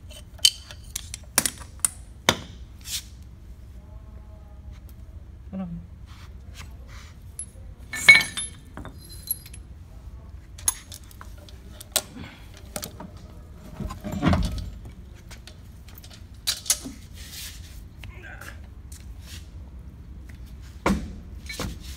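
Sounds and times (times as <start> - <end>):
metal chain clinking: 7.4 - 9.6.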